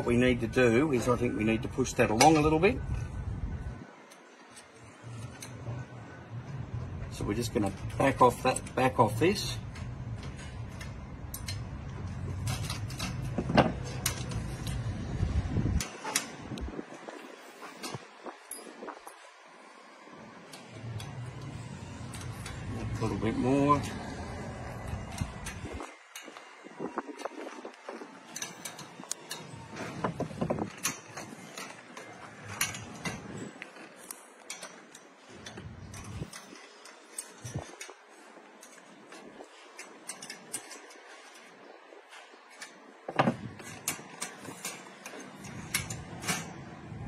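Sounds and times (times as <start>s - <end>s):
steady low rumble: 0.0s - 4.0s, 4.9s - 17.4s, 20.7s - 28.2s.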